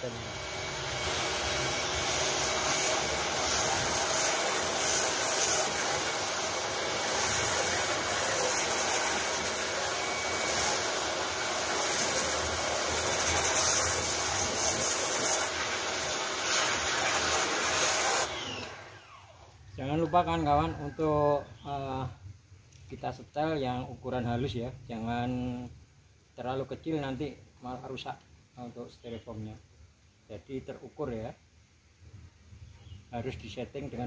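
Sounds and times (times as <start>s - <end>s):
pressure washer jetting water: 0.0s - 19.1s.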